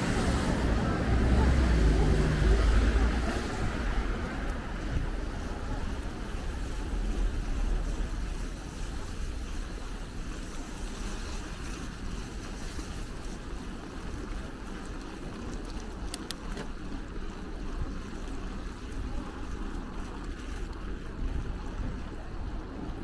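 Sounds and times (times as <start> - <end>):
wind rushing over microphone: 0.0 - 12.8
street traffic noise: 0.0 - 23.0.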